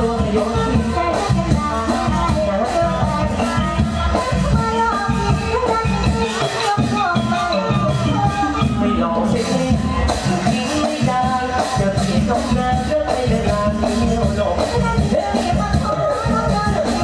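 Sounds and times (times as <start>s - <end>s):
band music with steady beat: 0.0s - 17.0s
wavering melody line: 0.1s - 10.4s.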